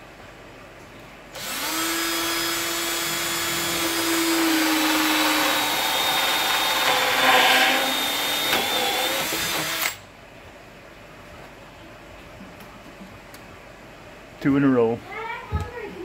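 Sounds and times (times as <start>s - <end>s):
drill cutting plastic pipe: 1.4s - 10.0s.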